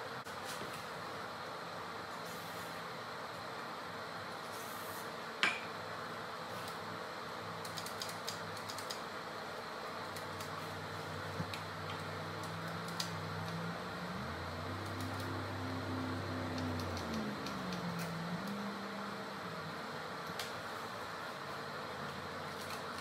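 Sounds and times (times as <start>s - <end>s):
steady hiss: 0.0s - 23.0s
faint low drone: 11.8s - 20.1s.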